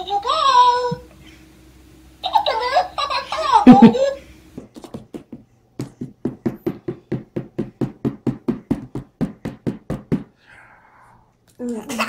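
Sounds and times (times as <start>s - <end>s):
rapid knocking on hard surface: 4.6s - 10.4s.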